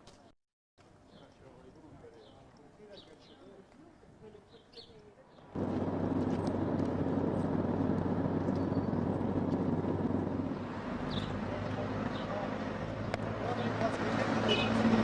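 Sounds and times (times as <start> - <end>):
low mechanical engine hum: 5.6 - 13.8.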